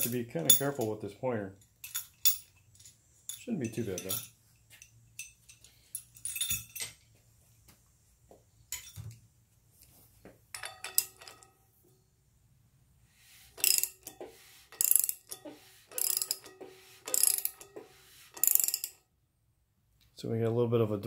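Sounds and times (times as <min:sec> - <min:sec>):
socket ratchet clicking: 0:13.6 - 0:19.0.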